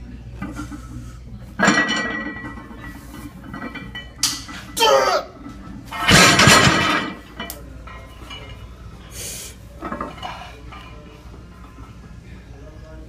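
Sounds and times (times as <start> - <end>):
barbell crashing with clanking plates: 5.9 - 7.3.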